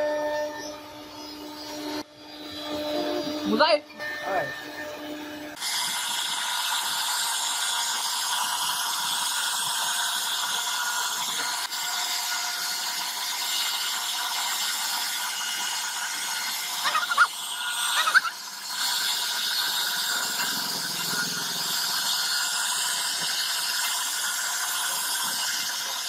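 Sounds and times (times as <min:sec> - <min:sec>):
bit cutting wood hiss: 0:00.0 - 0:26.0
router spindle whine: 0:00.0 - 0:26.0.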